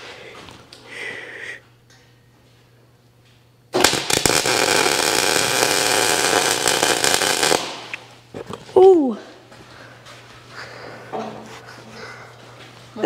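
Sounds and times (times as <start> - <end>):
welding arc crackling: 3.7 - 8.2.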